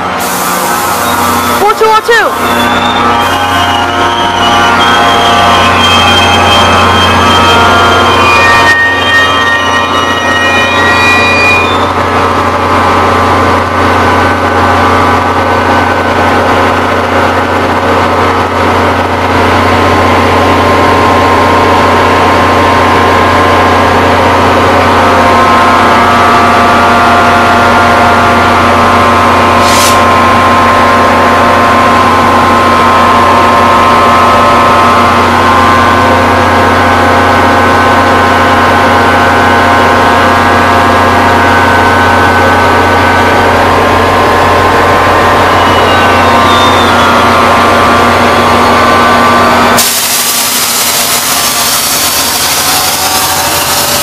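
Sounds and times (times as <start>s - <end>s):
diesel locomotive idling: 0.0s - 54.0s
engine whine: 0.0s - 54.0s
air hiss: 29.6s - 30.0s, 49.8s - 52.6s.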